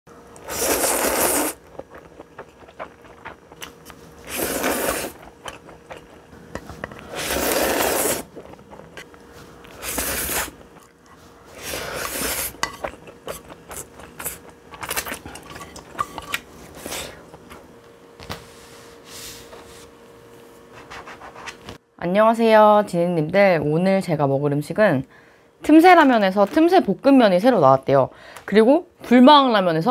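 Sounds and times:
noodle slurping: 0.4s - 16.0s
chewing: 0.9s - 11.3s.

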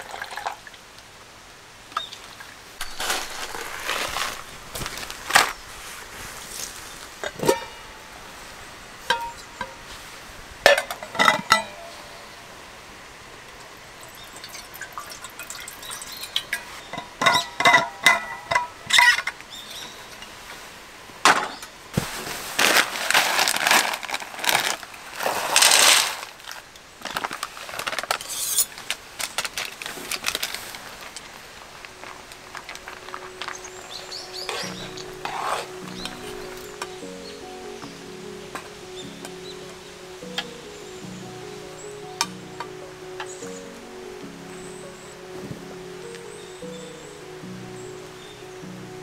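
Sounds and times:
metal cookware clinking: 7.2s - 7.8s, 9.1s - 9.8s, 10.7s - 12.1s, 14.3s - 19.3s.

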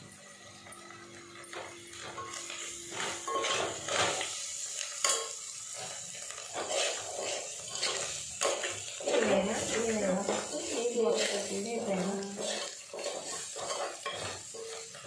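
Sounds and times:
faint frying sizzle: 0.0s - 15.0s
metal spoon scraping pot: 5.9s - 15.0s.

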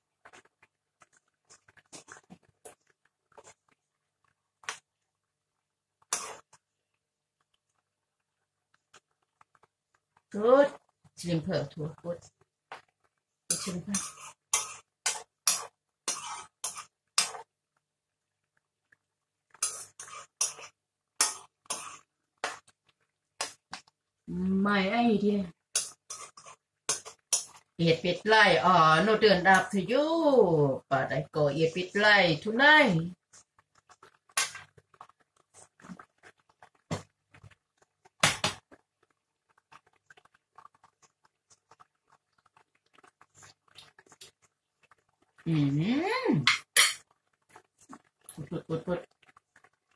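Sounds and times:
curry bubbling in a pot: 0.0s - 49.9s
metal ladle scraping wok: 6.1s - 6.4s, 13.5s - 17.4s, 19.6s - 22.0s, 25.8s - 27.6s, 46.4s - 47.0s.

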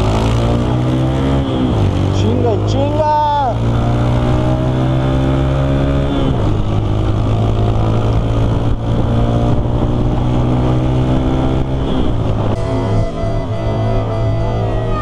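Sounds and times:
motorcycle engine accelerating: 0.0s - 15.0s
wind rush over microphone: 6.1s - 13.8s.

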